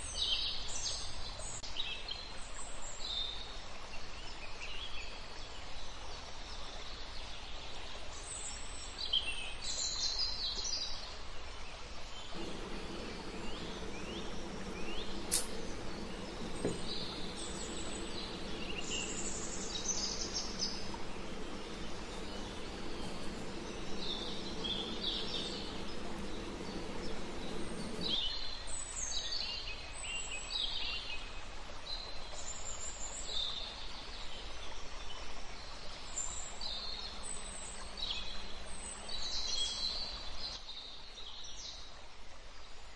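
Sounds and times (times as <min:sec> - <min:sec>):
steady background hiss: 0:12.3 - 0:28.2
steady low hum: 0:12.3 - 0:28.2
small birds chirping and trilling: 0:12.4 - 0:28.2.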